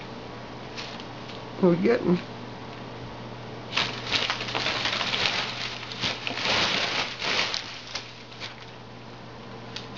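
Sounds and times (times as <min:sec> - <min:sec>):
cats scuffling paws: 0:00.6 - 0:01.5, 0:03.7 - 0:08.9.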